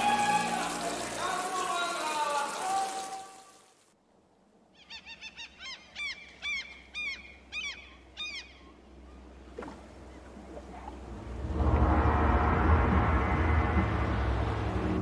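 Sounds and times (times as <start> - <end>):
bird calling: 4.7 - 11.1.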